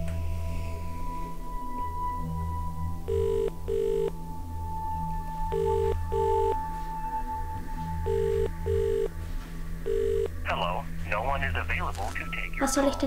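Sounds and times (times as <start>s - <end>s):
telephone ringback tone: 3.1s - 4.1s, 5.5s - 6.6s, 8.0s - 9.1s, 9.9s - 10.3s.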